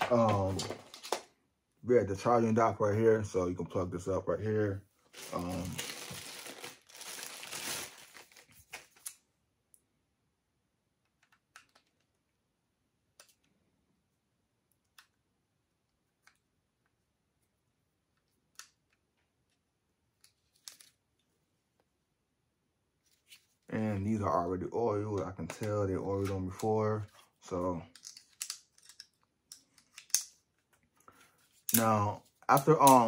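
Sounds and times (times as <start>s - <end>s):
packaging rustling: 5.0s - 9.2s.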